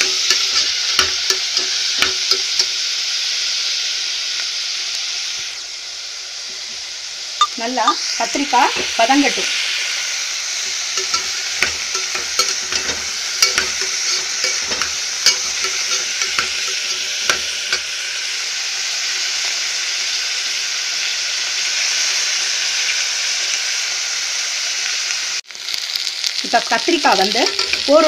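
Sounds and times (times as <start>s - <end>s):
metal spatula scraping pot: 0.0s - 2.7s, 10.6s - 17.9s, 27.3s - 28.0s
vegetables sizzling in oil: 0.0s - 28.0s.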